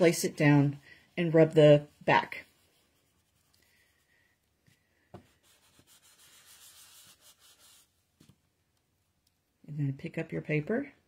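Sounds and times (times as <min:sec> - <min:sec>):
hand rubbing cardstock: 0:05.1 - 0:08.4.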